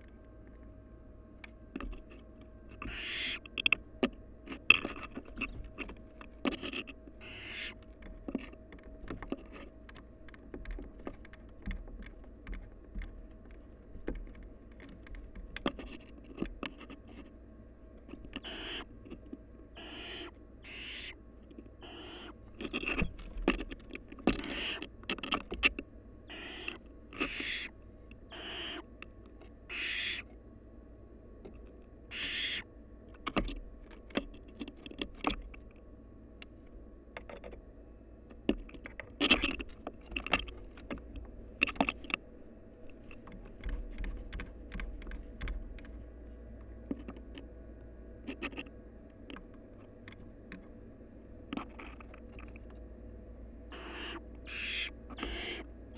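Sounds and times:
owls scratching against microphone: 0:01.8 - 0:03.5, 0:04.5 - 0:08.6, 0:18.1 - 0:19.2, 0:19.8 - 0:21.2, 0:21.8 - 0:24.9, 0:26.3 - 0:27.7, 0:28.3 - 0:28.9, 0:29.7 - 0:30.3, 0:32.1 - 0:32.6, 0:53.7 - 0:55.7
owls hissing: 0:02.8 - 0:03.4, 0:07.2 - 0:07.8, 0:18.4 - 0:18.9, 0:19.8 - 0:21.2, 0:21.8 - 0:22.4, 0:24.4 - 0:24.8, 0:26.3 - 0:27.7, 0:28.3 - 0:28.9, 0:29.7 - 0:30.3, 0:32.1 - 0:32.6, 0:53.7 - 0:55.6.

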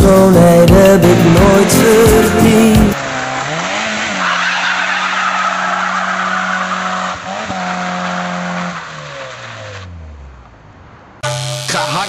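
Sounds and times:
car engine revving: 0:00.1 - 0:12.0
tyres skidding on wet road: 0:03.0 - 0:11.1.

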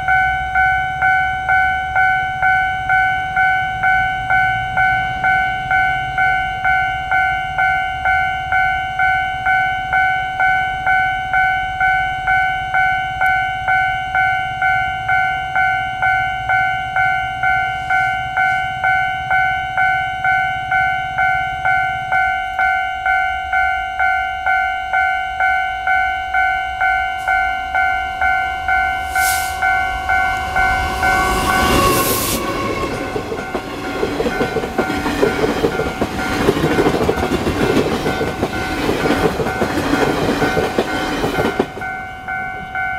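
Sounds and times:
level-crossing warning bell: 0:00.0 - 0:42.9
passenger train passing: 0:00.0 - 0:42.9.

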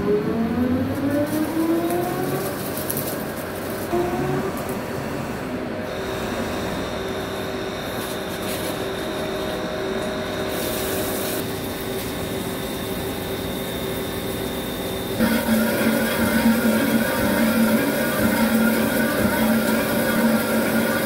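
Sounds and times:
lathe machine hum: 0:00.0 - 0:21.0
thin high whine: 0:05.7 - 0:21.0.

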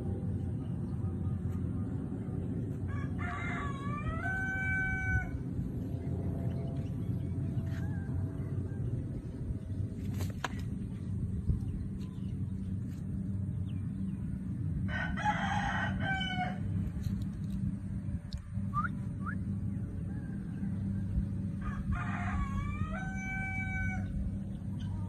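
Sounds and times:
steady low hum: 0:00.0 - 0:25.0
rooster crowing: 0:02.9 - 0:05.4, 0:07.6 - 0:08.9, 0:14.9 - 0:16.8, 0:20.0 - 0:24.3.

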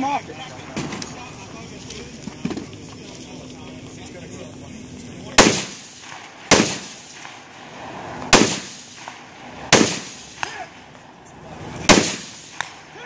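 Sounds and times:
rifle shots with echo: 0:05.3 - 0:07.5, 0:08.3 - 0:10.8, 0:11.8 - 0:13.0.

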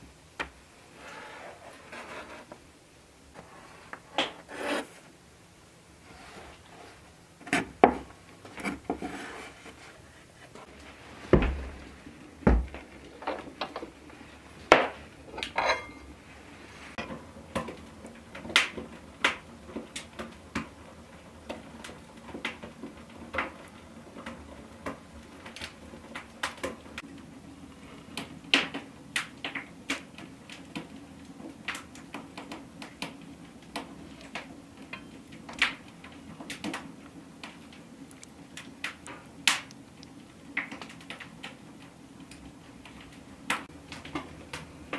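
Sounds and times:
heavy knocks: 0:11.3 - 0:11.8, 0:12.4 - 0:12.8.

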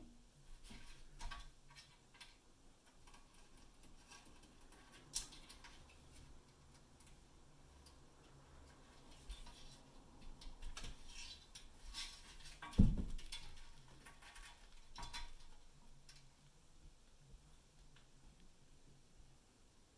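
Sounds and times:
claws scraping on metal ladder: 0:00.5 - 0:07.2, 0:08.6 - 0:16.3.

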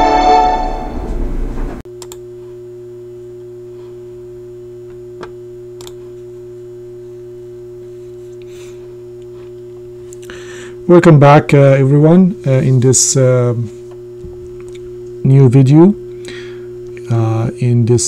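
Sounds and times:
intro theme music: 0:00.0 - 0:01.8
steady electrical hum: 0:00.0 - 0:18.0.

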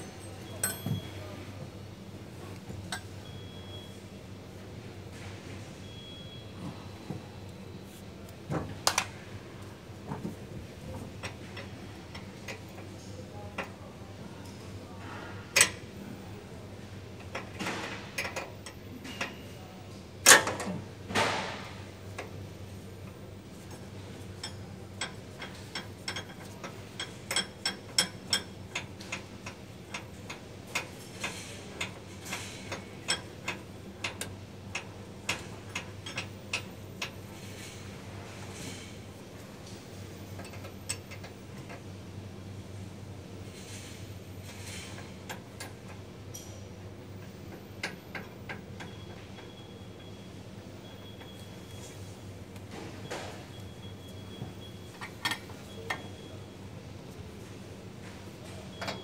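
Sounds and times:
metal tools clanking: 0:00.0 - 0:01.2.

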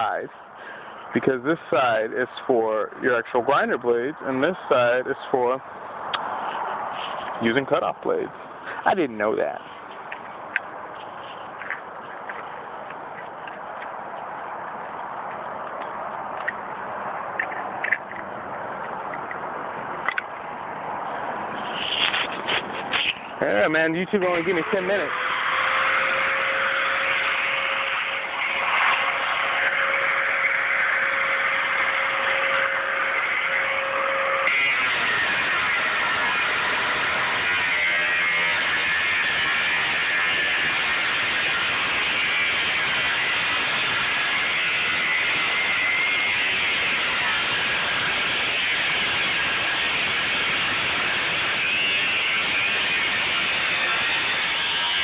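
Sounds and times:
steady whine: 0:00.0 - 0:55.0
angle grinder cutting steel: 0:21.6 - 0:55.0.

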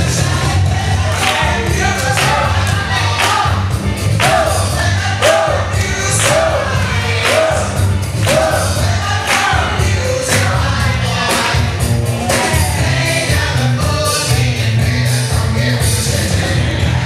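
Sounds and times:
heavy bass line: 0:00.0 - 0:17.0
loud music from speakers: 0:00.0 - 0:17.0
singing: 0:00.0 - 0:17.0
drum beat: 0:01.2 - 0:13.5.

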